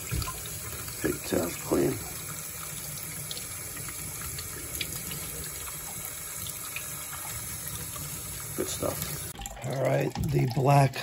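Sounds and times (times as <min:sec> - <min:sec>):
faucet running into steel sink: 0:00.0 - 0:11.0.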